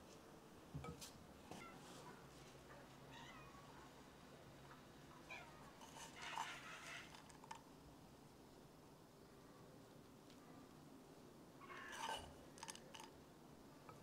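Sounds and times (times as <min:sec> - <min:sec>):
cat meowing faintly: 0:01.4 - 0:03.9.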